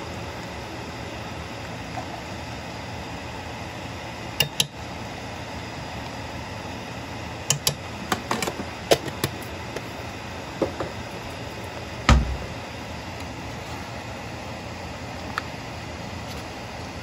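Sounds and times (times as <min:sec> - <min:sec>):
steady background hum: 0:00.0 - 0:17.0
heavy knock: 0:12.1 - 0:12.5.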